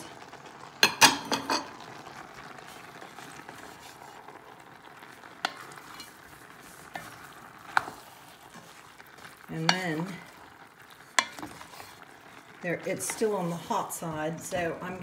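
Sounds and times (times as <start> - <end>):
pan sizzling: 0.0 - 15.0
wooden spoon knocking on pot: 9.6 - 10.0, 11.2 - 11.5.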